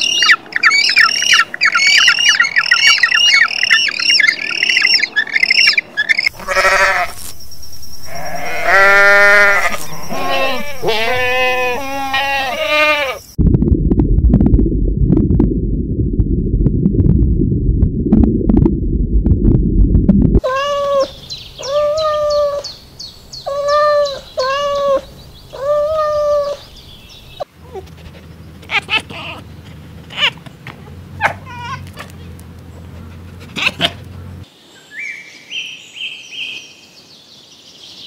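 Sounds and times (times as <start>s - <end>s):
sheep bleating: 6.3s - 7.2s, 8.1s - 13.2s
cat meowing: 6.4s - 7.1s, 8.1s - 13.2s, 20.4s - 22.6s, 23.5s - 26.6s
loud low rumble: 7.3s - 10.8s, 13.4s - 20.4s.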